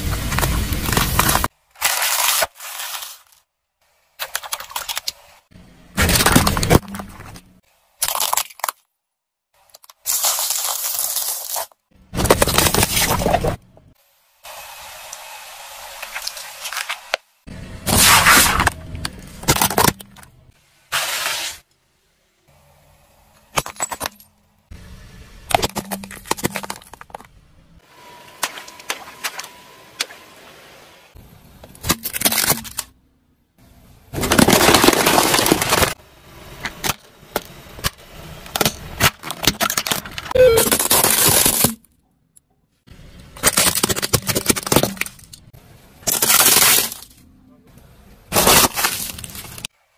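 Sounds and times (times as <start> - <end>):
car tyre crushing objects: 0.0 - 3.3, 5.9 - 8.9, 9.8 - 13.7, 16.0 - 21.5, 25.4 - 27.8, 34.1 - 42.0, 43.1 - 47.2, 48.3 - 49.8.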